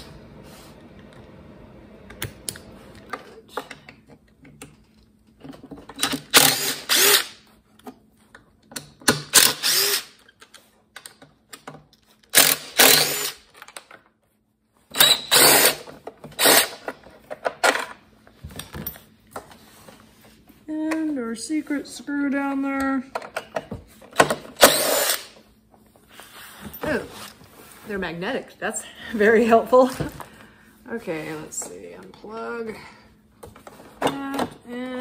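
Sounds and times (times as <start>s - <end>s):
impact driver running: 6.2s - 7.4s, 9.2s - 10.2s, 12.4s - 13.4s, 15.0s - 16.9s, 24.4s - 25.4s.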